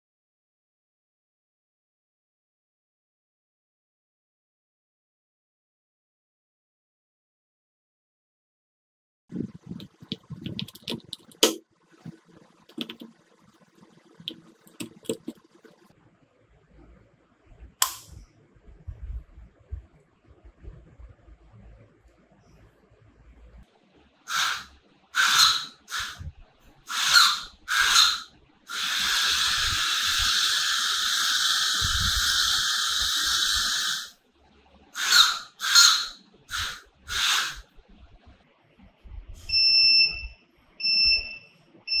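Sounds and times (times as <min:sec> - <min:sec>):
small motors whirring: 0:26.9 - 0:34.1.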